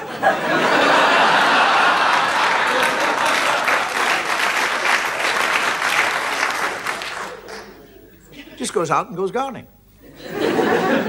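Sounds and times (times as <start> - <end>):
audience laughter: 0.0 - 5.3, 10.0 - 11.0
audience applauding: 0.0 - 7.8.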